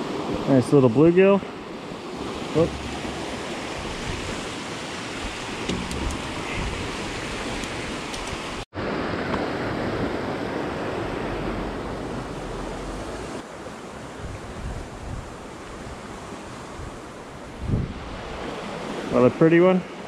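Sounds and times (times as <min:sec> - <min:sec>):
wind noise on microphone: 0:02.1 - 0:08.6, 0:14.1 - 0:19.0
water rushing through spillway: 0:02.2 - 0:13.4.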